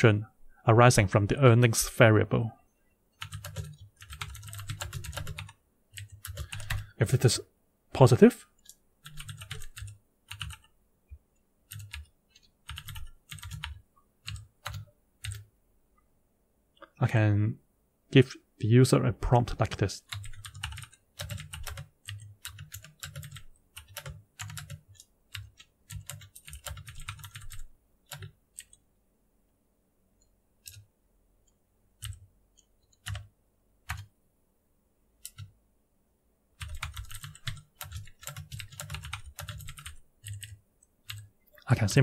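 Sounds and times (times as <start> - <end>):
typing on keyboard: 3.2 - 7.0, 8.5 - 10.7, 11.7 - 15.5, 20.0 - 28.8, 30.6 - 30.8, 32.0 - 34.1, 35.2 - 35.5, 36.6 - 41.3.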